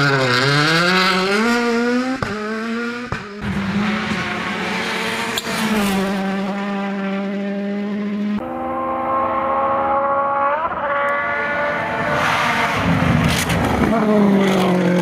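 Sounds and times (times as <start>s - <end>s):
cars passing at high revs: 0.0s - 15.0s
rally car engine accelerating: 0.0s - 15.0s.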